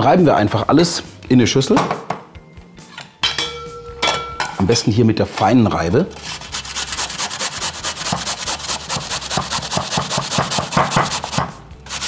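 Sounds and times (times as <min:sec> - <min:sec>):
potato grating on metal grater: 0:06.1 - 0:12.0.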